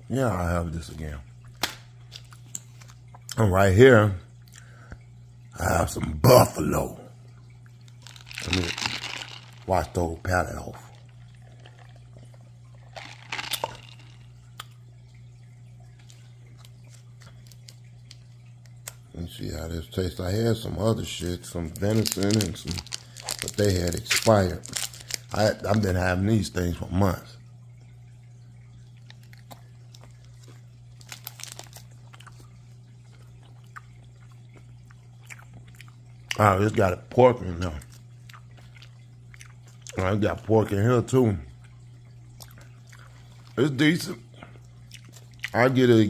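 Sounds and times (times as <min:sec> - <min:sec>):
steady low hum: 0:00.0 - 0:46.0
plastic wrapper crinkling: 0:07.9 - 0:12.0, 0:12.9 - 0:14.2, 0:21.1 - 0:26.0, 0:30.0 - 0:32.4
person sipping and swallowing: 0:10.8 - 0:14.8, 0:21.9 - 0:25.4
meat stick being chewed: 0:44.4 - 0:45.6.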